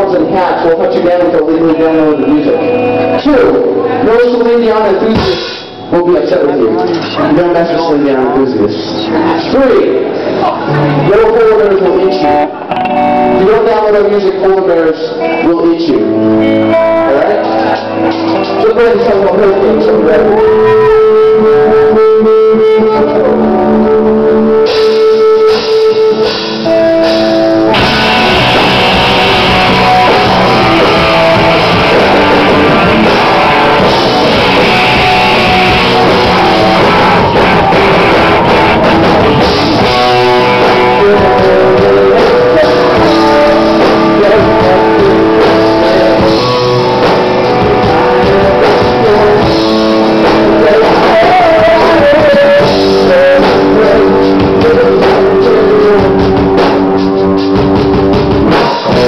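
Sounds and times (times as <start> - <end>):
electric guitars: 0.0 - 59.0
drum kit: 2.6 - 5.9, 16.2 - 59.0
person singing: 15.0 - 26.9, 27.7 - 57.7.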